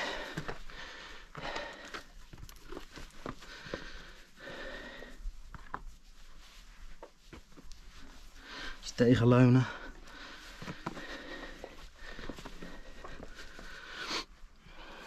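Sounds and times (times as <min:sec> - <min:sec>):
person breathing hard: 0:00.0 - 0:05.4, 0:07.9 - 0:08.8, 0:09.7 - 0:15.0.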